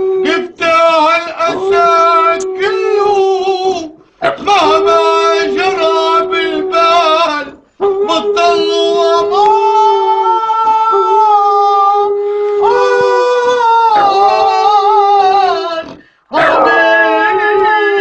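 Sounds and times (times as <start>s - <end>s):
man howling: 0.0s - 18.0s
dog howling: 4.2s - 18.0s.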